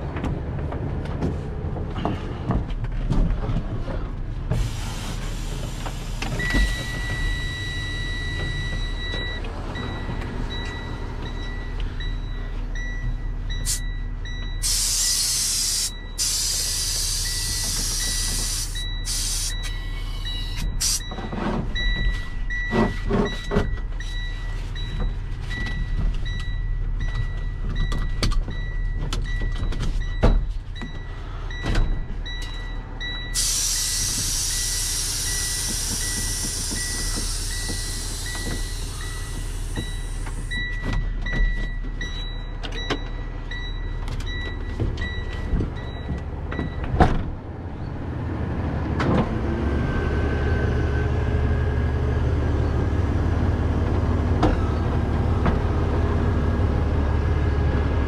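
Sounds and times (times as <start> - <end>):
heavy truck engine idling: 0.0 - 21.2, 28.5 - 49.6
truck warning buzzer beeping: 6.4 - 46.9
air hissing: 14.6 - 21.0, 33.3 - 40.5.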